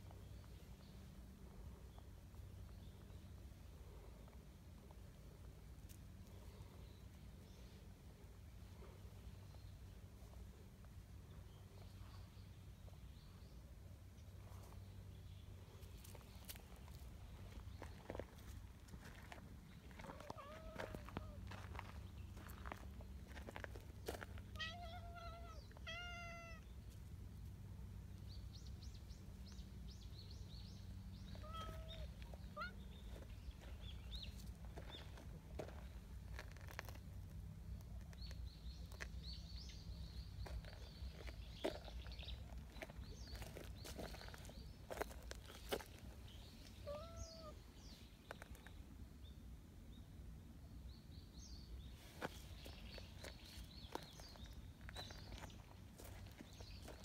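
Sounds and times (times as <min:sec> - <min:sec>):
cat meowing: 0:20.2 - 0:21.4, 0:24.5 - 0:26.6, 0:31.4 - 0:32.8, 0:46.8 - 0:47.6
faint bird chirps: 0:38.1 - 0:48.8.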